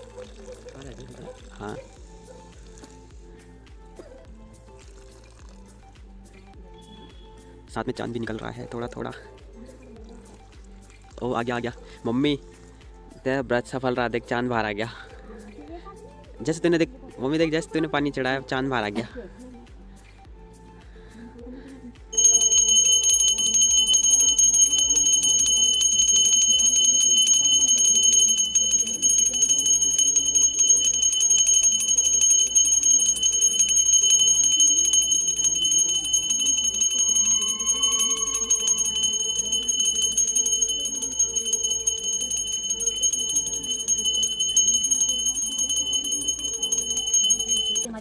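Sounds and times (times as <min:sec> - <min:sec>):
hand bell ringing rapidly: 0:22.2 - 0:47.9.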